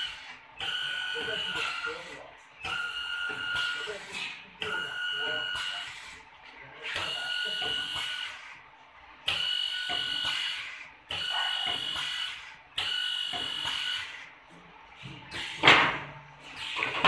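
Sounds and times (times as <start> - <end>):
drill motors whining: 6.9 - 8.4, 9.3 - 14.2.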